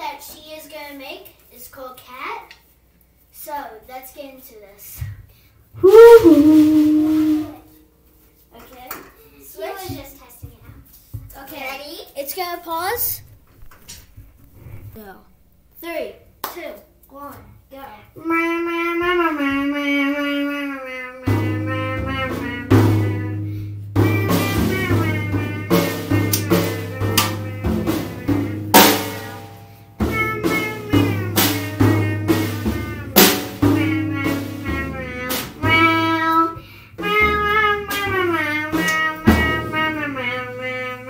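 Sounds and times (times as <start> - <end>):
drum kit playing: 5.8 - 7.6, 21.4 - 36.2, 37.1 - 40.3
pitched melody: 5.8 - 7.6
sustained bass notes: 5.8 - 7.6.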